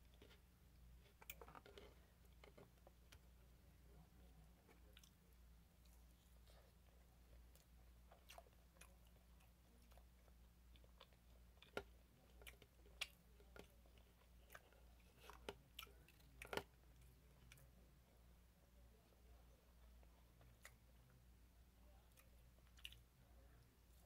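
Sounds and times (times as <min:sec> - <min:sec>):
faint chewing: 0:00.0 - 0:24.0.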